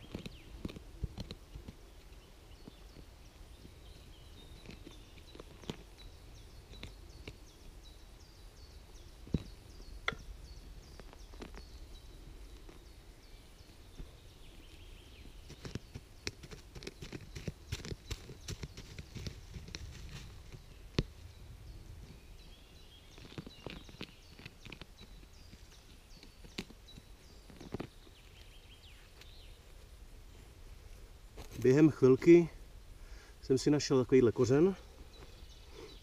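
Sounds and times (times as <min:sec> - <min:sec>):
hands and stick digging in soil: 0:00.0 - 0:07.5, 0:13.9 - 0:21.2, 0:22.8 - 0:28.6
sharp clicks and crackles: 0:15.5 - 0:21.1, 0:23.2 - 0:27.9.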